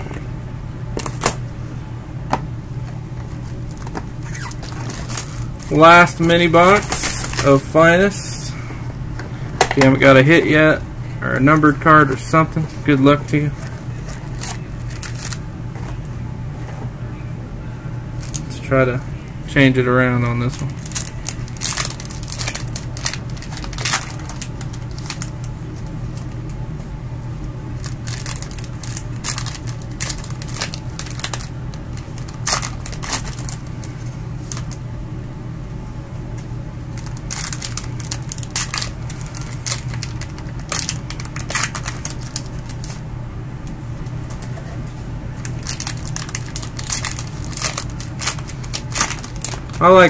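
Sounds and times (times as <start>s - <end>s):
low hum: 0.0s - 50.0s
card wrappers crinkling: 3.2s - 8.2s, 12.9s - 15.9s, 18.2s - 18.5s, 20.3s - 26.6s, 27.8s - 34.8s, 36.9s - 43.0s, 44.2s - 50.0s.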